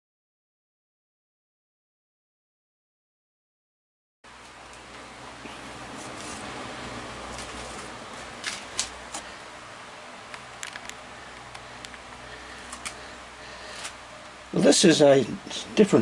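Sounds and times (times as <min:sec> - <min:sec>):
room hiss: 0:04.3 - 0:16.0.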